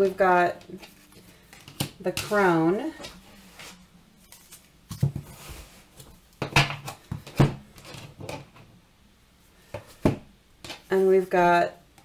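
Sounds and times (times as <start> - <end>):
cards rustling while shuffled: 3.0 - 6.1.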